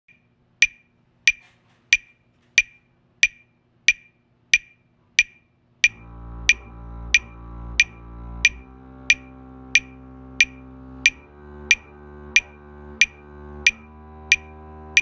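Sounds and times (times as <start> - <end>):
metronome ticking: 0.6 - 15.0
double bass bowed note: 5.9 - 15.0.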